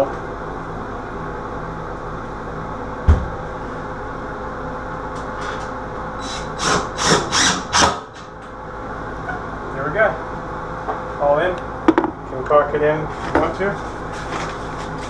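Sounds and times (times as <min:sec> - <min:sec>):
cordless drill driving a screw: 0:06.2 - 0:08.1.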